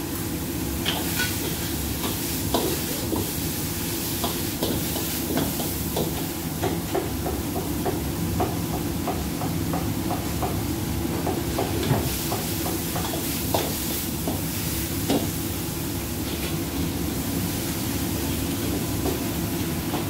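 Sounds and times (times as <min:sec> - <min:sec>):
food sizzling: 0:00.0 - 0:06.8
gas burner roaring: 0:00.0 - 0:20.0
metal utensils scraping a wok: 0:00.9 - 0:01.7.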